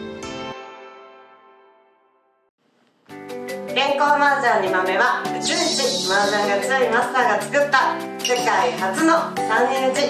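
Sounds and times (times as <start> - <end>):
bass: 3.1 - 10.0.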